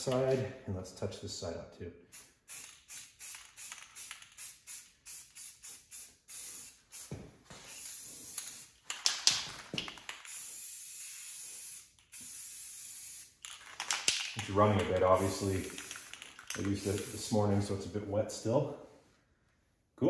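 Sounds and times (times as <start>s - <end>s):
aerosol spray can spraying: 2.1s - 8.8s, 10.1s - 13.4s, 15.0s - 17.4s.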